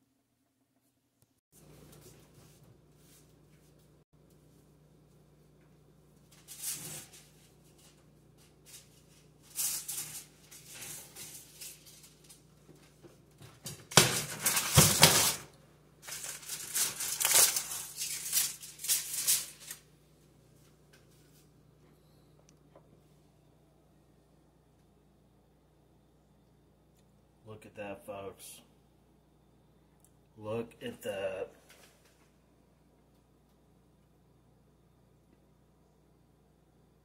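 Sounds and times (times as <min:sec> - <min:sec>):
aluminium foil crinkling: 0:06.3 - 0:12.9, 0:13.8 - 0:19.9.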